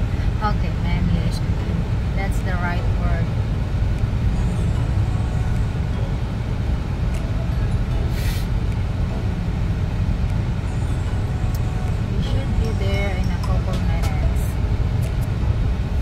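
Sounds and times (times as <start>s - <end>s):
car rumble from inside cabin: 0.0s - 16.0s
short hiss: 8.1s - 8.5s.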